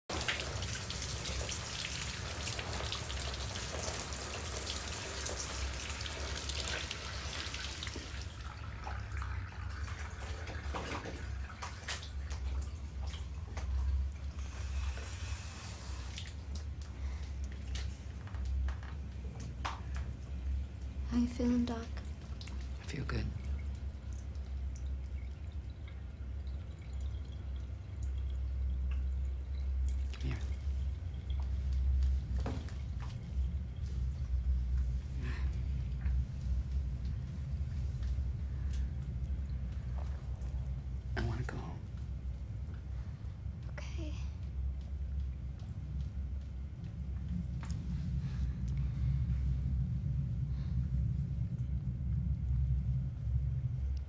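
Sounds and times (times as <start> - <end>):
shower water spattering: 0.1 - 18.8
faint water drips: 0.1 - 54.0
low steady rumble: 0.1 - 54.0
steady low hum: 0.1 - 54.0.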